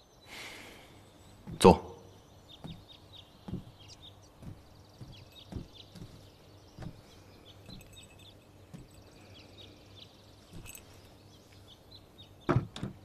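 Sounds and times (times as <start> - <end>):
faint birds chirping: 0.0 - 13.0
low steady hum: 0.0 - 13.0
soft thumps: 2.6 - 9.0.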